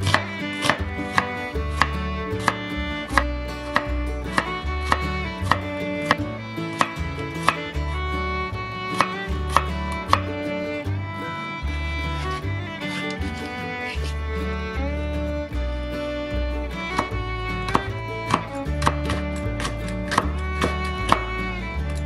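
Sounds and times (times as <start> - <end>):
knife slicing on cutting board: 0.0 - 2.6
soft instrumental music: 0.0 - 22.0.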